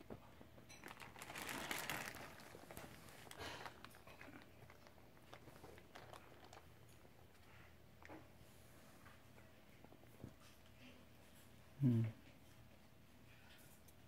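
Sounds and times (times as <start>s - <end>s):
plastic bags crinkling: 0.7s - 7.5s.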